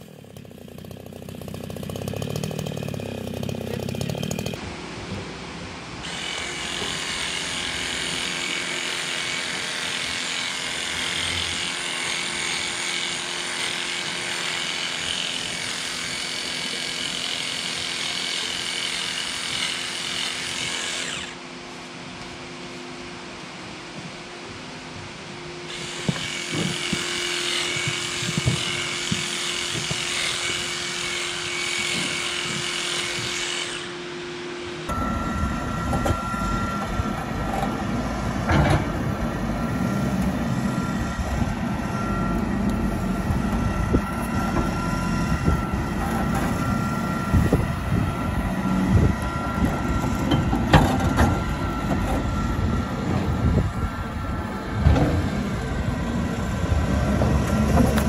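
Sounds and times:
diesel engine running: 0.0s - 5.4s, 34.7s - 58.0s
handheld power tool whirring: 6.0s - 21.4s, 25.7s - 34.0s.

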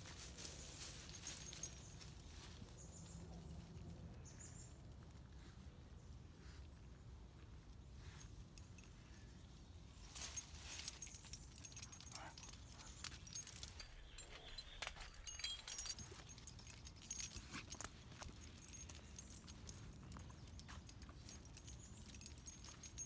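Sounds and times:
dog leash hardware jingling: 0.2s - 3.8s, 10.0s - 23.0s.

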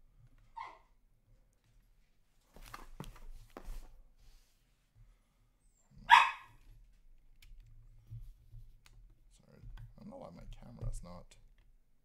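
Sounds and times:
dog barking: 0.6s - 0.9s, 6.0s - 6.6s.

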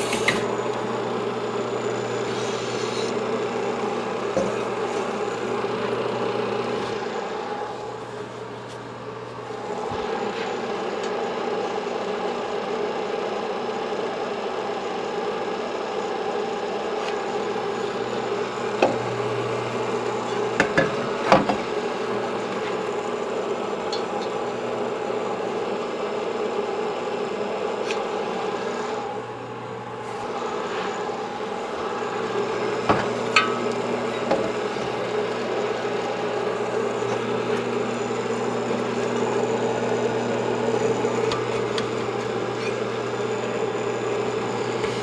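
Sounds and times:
honing machine running: 17.3s - 45.0s.

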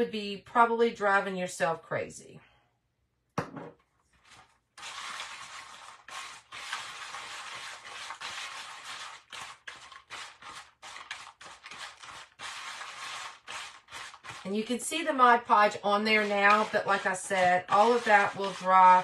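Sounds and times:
stick scraping in paper bowl: 4.2s - 19.0s.

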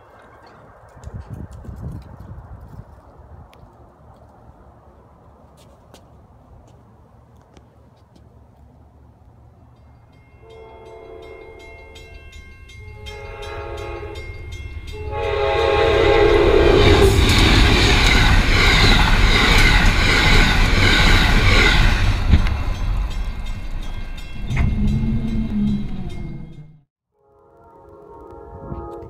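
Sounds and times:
train passing rush and rumble: 0.0s - 29.0s
crossing bell ringing: 9.7s - 16.6s, 19.2s - 26.8s
locomotive horn blasts: 10.4s - 12.2s, 12.8s - 17.1s, 27.2s - 29.0s.

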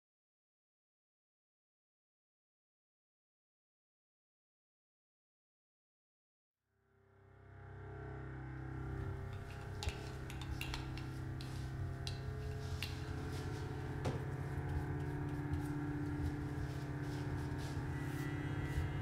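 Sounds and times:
low ominous drone: 6.9s - 19.0s
clicks and crackles: 9.3s - 13.2s.

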